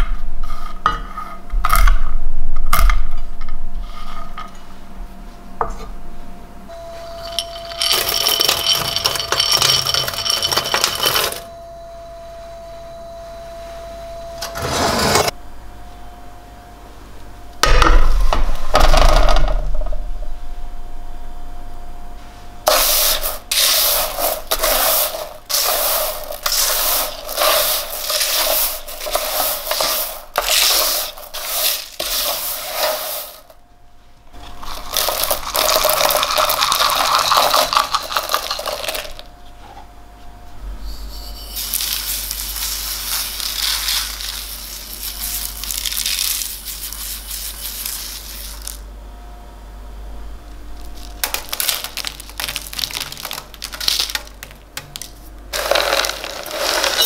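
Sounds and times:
spatula scraping crunchy lentils: 22.7s - 33.5s, 55.6s - 57.0s.

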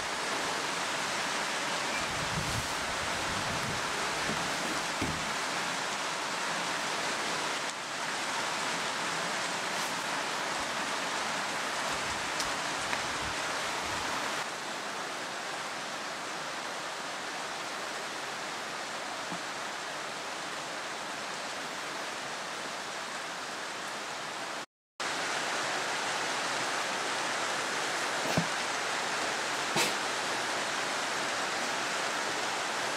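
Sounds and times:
steady hiss: 0.0s - 15.1s, 25.0s - 32.9s.

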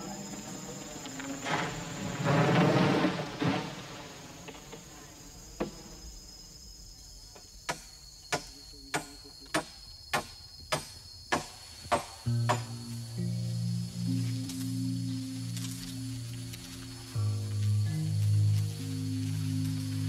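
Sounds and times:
insects shrilling: 0.0s - 20.0s.

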